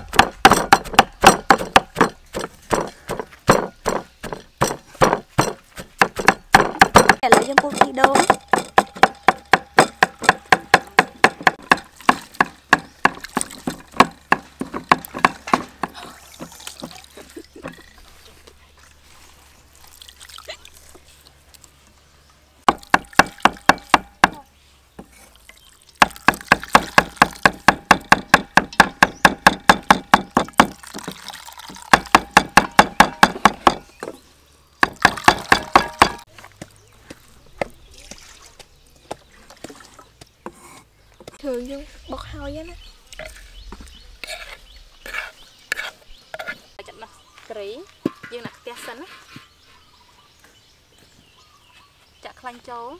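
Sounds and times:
pestle pounding in wooden mortar: 0:00.0 - 0:17.0, 0:22.7 - 0:24.4, 0:26.0 - 0:34.2, 0:34.8 - 0:37.8
wet squelching and dripping: 0:16.0 - 0:21.8, 0:30.7 - 0:31.9, 0:36.2 - 0:40.2.

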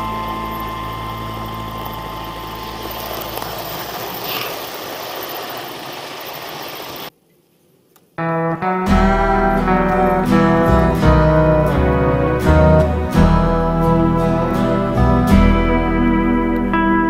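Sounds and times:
background music: 0:00.0 - 0:03.4, 0:08.2 - 0:17.0
model train rumbling on track: 0:00.0 - 0:07.1.

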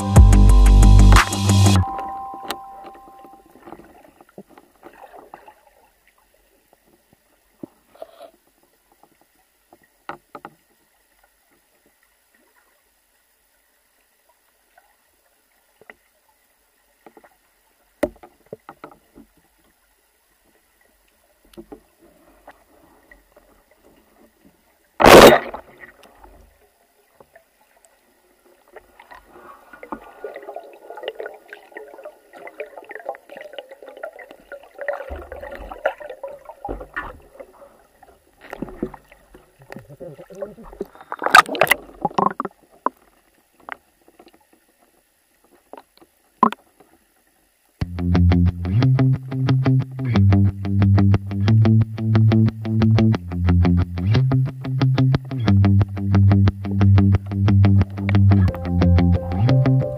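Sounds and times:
faint underwater crackling: 0:01.8 - 0:47.8
speargun firing underwater: 0:25.0 - 0:25.7.

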